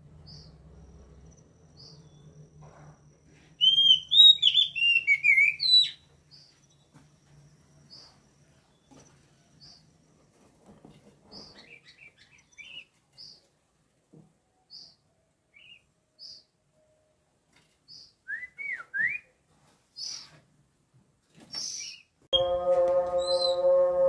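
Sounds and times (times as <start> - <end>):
bird chirping: 0.1 - 10.2, 11.3 - 13.5, 14.5 - 16.9, 21.6 - 24.0
bird whistled notes sliding: 22.4 - 24.0.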